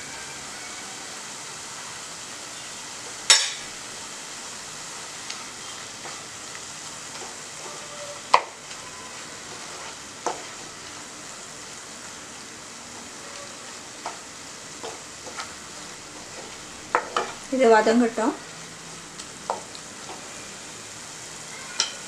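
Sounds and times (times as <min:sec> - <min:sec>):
onion paste sizzling in a pan: 0:00.0 - 0:22.0
wooden spoon scraping pan: 0:07.1 - 0:10.8, 0:14.8 - 0:17.5.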